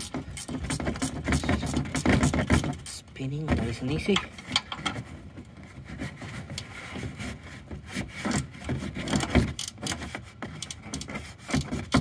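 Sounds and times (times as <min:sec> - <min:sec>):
wrench clicking on bolt: 0:09.6 - 0:10.0.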